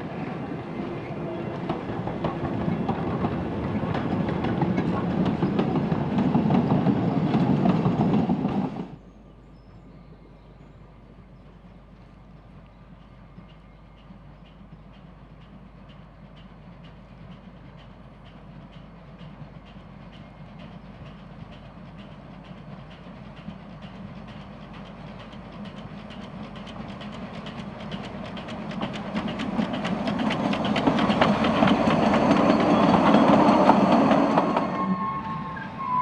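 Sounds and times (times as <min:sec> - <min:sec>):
coaches rattling over rail joints: 0:00.0 - 0:08.8, 0:13.4 - 0:36.0
steam locomotive chuffing: 0:12.9 - 0:36.0.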